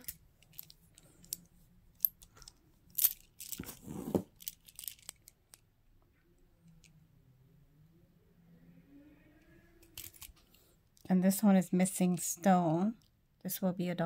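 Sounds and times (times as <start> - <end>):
jewelry clicking: 4.4 - 5.6.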